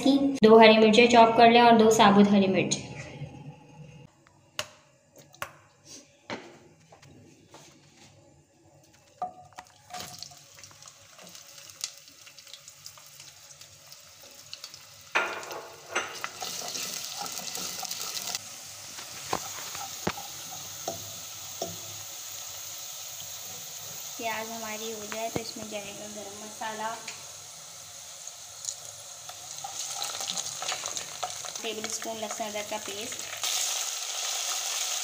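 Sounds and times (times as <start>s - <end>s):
onions sizzling in hot oil: 9.0s - 35.0s.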